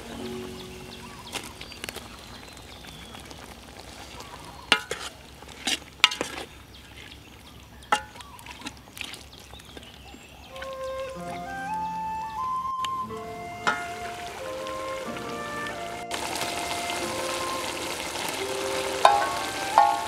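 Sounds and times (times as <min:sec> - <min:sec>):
low hiss from cooking pot: 0:12.8 - 0:20.0.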